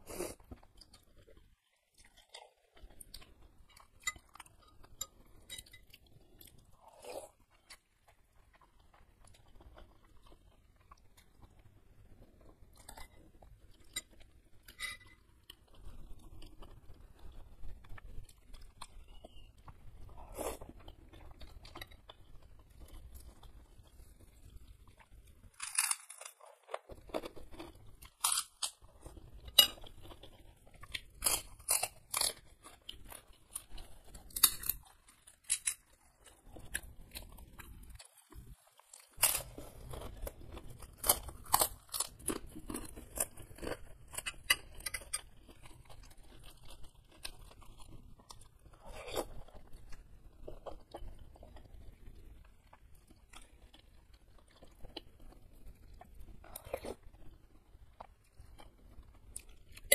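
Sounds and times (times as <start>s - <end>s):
chewing noodles: 0.0s - 59.9s
crisp cracker crunches: 25.0s - 57.4s.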